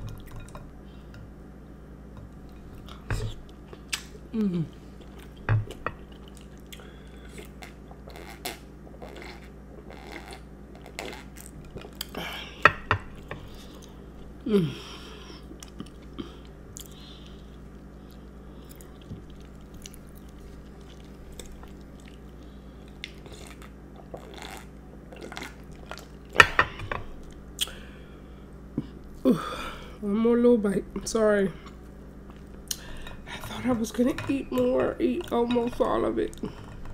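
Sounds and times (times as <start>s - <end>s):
close-miked chewing: 15.4s - 26.3s.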